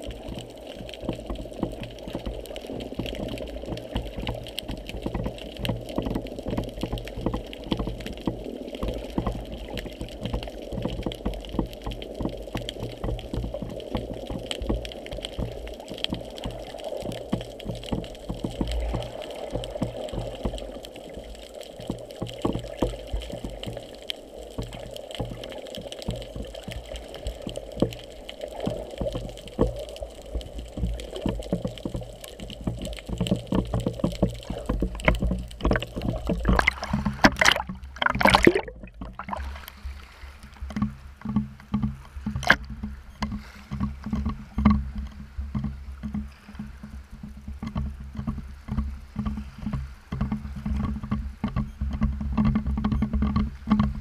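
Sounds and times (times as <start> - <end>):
muffled underwater noise: 0.0 - 41.4
small underwater clicks: 0.0 - 54.0
water sloshing against housing: 30.8 - 46.8
splash breaking water surface: 36.4 - 39.6.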